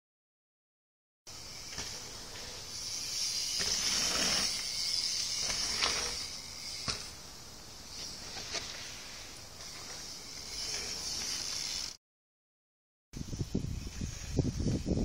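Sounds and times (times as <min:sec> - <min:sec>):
high-pitched insect drone: 0:01.3 - 0:12.0.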